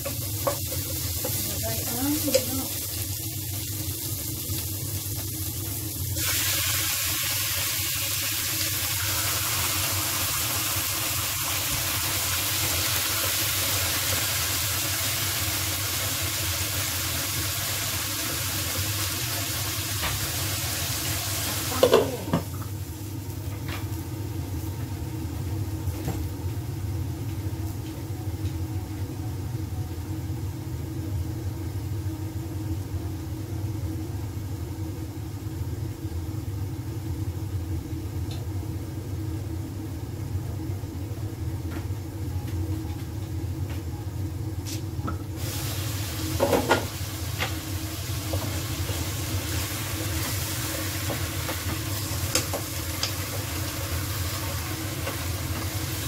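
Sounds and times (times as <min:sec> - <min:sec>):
chicken sizzling in hot oil: 0:00.0 - 0:24.7, 0:45.3 - 0:56.0.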